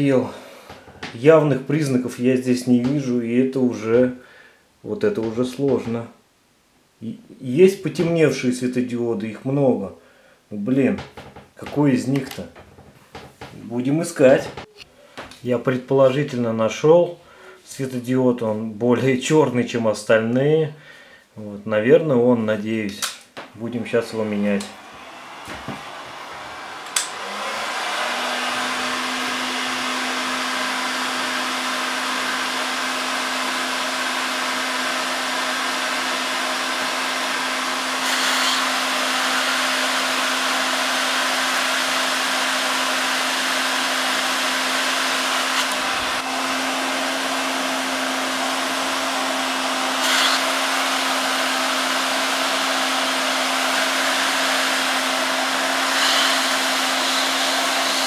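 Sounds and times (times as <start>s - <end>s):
clicks: 11.0s - 12.6s, 26.8s - 27.2s
hot-air gun blowing: 24.6s - 58.0s.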